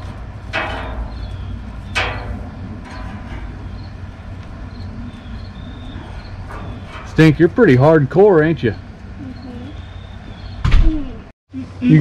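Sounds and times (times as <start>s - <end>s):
metal utensil scraping grill grate: 0.0s - 9.2s
steady low rumble: 0.0s - 12.0s.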